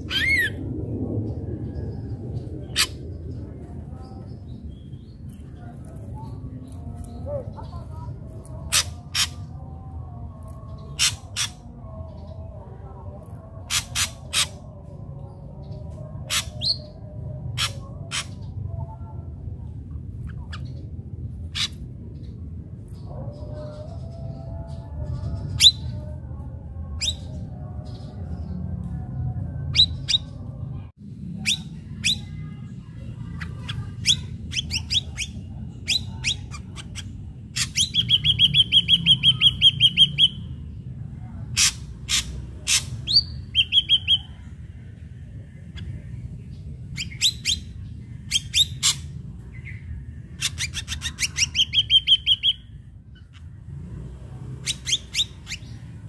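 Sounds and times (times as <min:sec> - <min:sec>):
low rumble: 0:00.0 - 0:51.6
bird singing whistled notes: 0:37.6 - 0:40.5.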